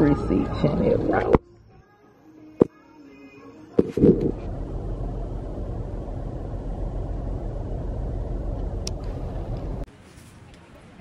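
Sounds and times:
car engine rumble from inside: 0:04.0 - 0:09.9.

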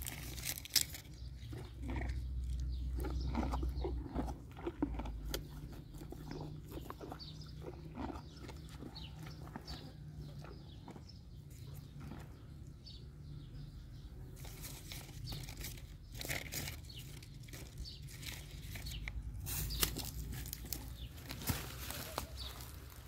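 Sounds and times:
leaves rustling and tearing: 0:00.0 - 0:01.2, 0:14.4 - 0:23.0
horse chewing with crunching snaps: 0:00.0 - 0:23.0.

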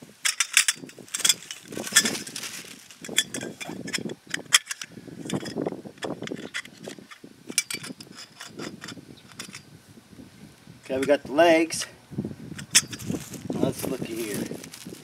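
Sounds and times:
metal tripod legs clinking: 0:00.2 - 0:09.7, 0:12.6 - 0:15.0.

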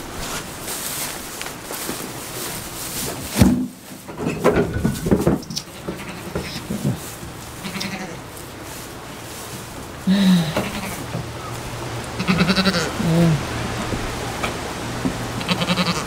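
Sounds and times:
goats bleating: 0:05.5 - 0:08.4, 0:10.0 - 0:13.8, 0:15.3 - 0:16.0.

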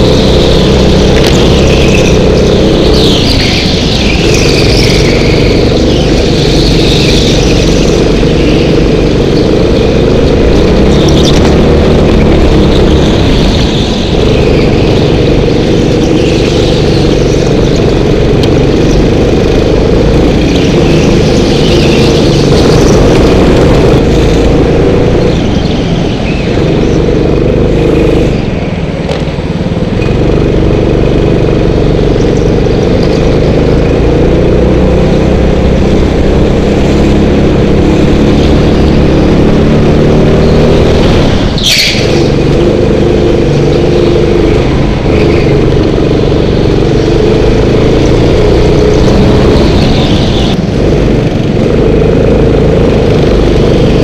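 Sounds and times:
high squeal: 0:00.0 - 0:18.0, 0:40.2 - 0:50.6
go-kart engine running hard: 0:00.0 - 0:54.0.

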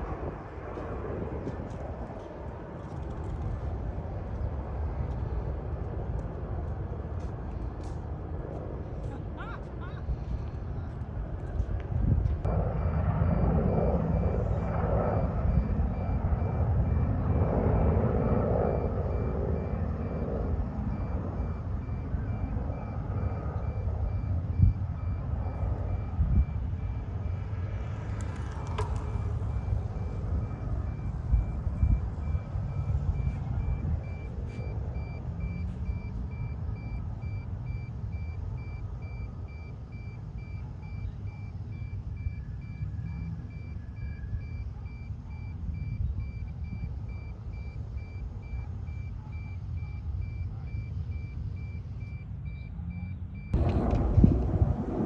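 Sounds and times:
continuous low rumble: 0:00.0 - 0:55.0
reversing alarm beeping: 0:12.5 - 0:53.8.

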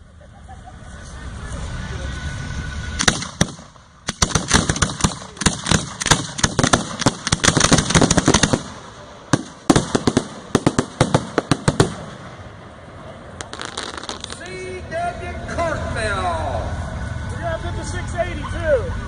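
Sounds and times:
fireworks bangs and crackles: 0:02.4 - 0:14.8.

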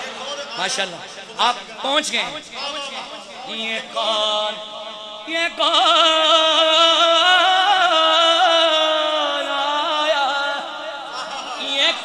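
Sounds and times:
man singing into a microphone: 0:03.5 - 0:12.0.

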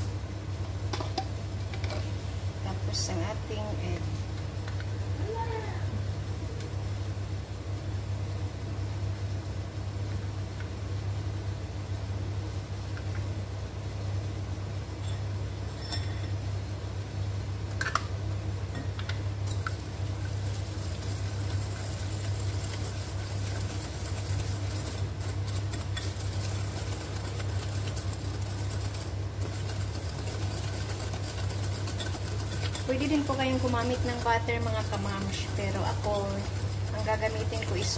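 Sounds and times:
steady low hum: 0:00.0 - 0:37.9
whisk clicking in glass bowl: 0:19.5 - 0:37.9.

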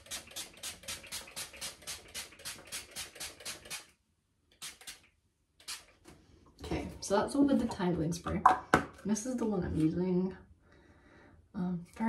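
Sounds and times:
pump spray bottle squirts: 0:00.0 - 0:06.0.

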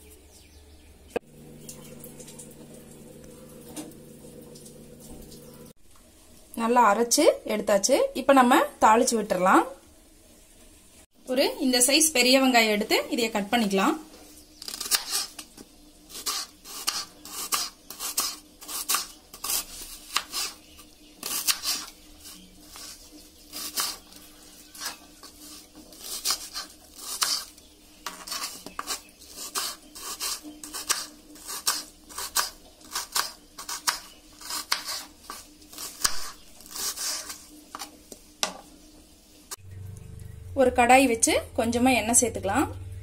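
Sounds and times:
knife chopping on cutting board: 0:29.6 - 0:37.9.

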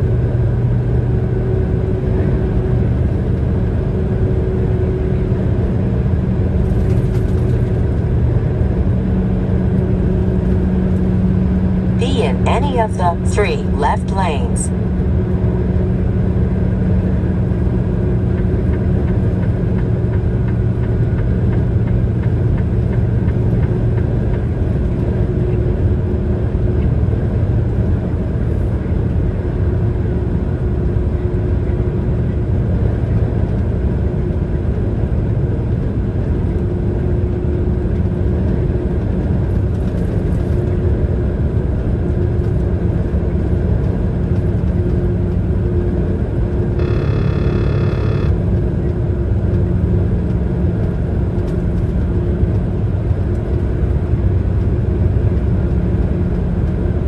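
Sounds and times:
vehicle road and engine rumble: 0:00.0 - 0:13.1, 0:14.9 - 0:57.0
faint steady hum: 0:12.0 - 0:14.7, 0:46.5 - 0:49.2.

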